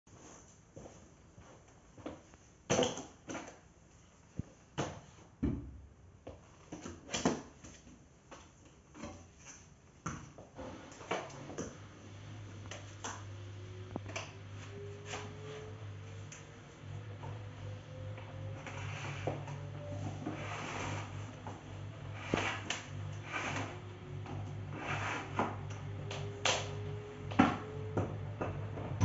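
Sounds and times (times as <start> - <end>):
vacuum cleaner motor starting: 10.6 - 29.0.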